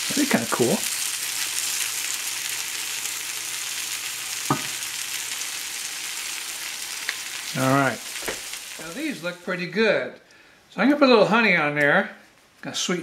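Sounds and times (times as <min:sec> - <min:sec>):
pancakes sizzling in a skillet: 0:00.0 - 0:09.5.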